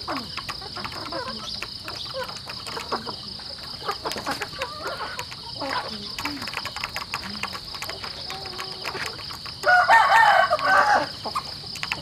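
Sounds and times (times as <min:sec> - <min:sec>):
rooster crowing: 0:09.6 - 0:11.2.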